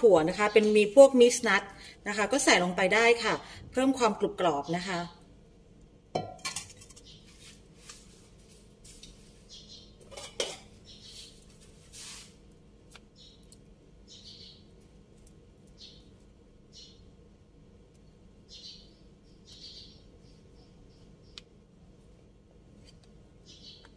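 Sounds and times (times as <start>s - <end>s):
utensil scraping metal cookware: 10.0s - 10.8s.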